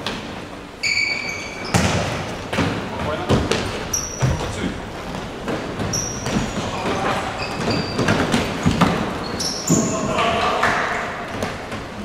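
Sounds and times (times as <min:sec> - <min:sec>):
shoes squeaking on floor: 0:00.8 - 0:10.4
ball kicked and bouncing: 0:01.7 - 0:04.6.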